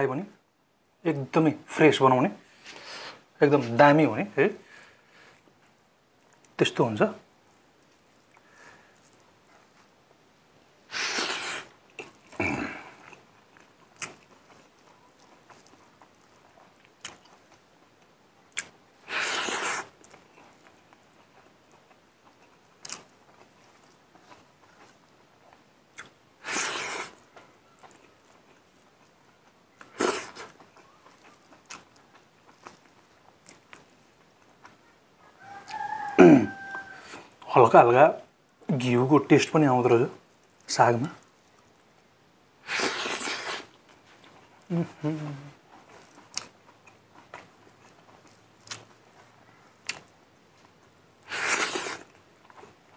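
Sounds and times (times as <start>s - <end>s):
soft chewing and mouth clicks: 4.6s - 6.6s, 7.2s - 10.4s, 11.2s - 37.6s, 40.1s - 52.9s
slurps or sniffs: 10.9s - 11.7s, 19.1s - 19.9s, 26.4s - 27.2s, 42.6s - 43.7s, 51.3s - 52.1s.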